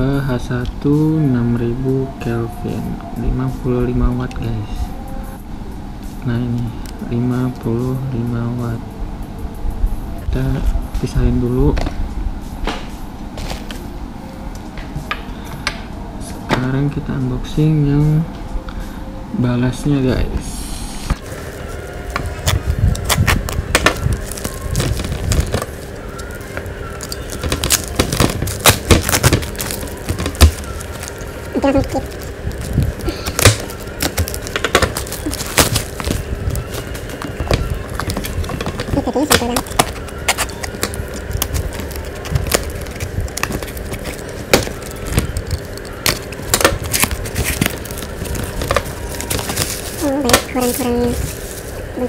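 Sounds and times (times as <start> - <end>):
cardboard clicks and scraping: 21.1 - 51.8
plastic wrapping crackling: 21.1 - 52.0.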